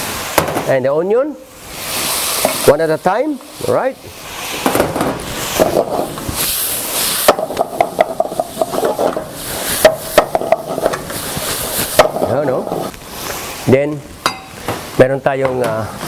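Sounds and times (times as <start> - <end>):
food sizzling in oil: 0.0 - 0.7, 1.4 - 15.0
wooden spatula scraping pan: 4.4 - 13.5.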